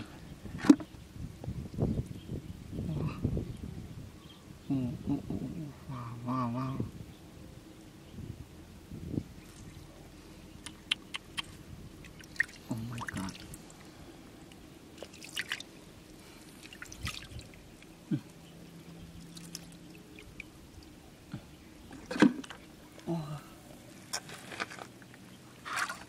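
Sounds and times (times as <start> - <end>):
small water splashes and drips: 10.9 - 13.9, 14.5 - 21.0, 25.6 - 26.0.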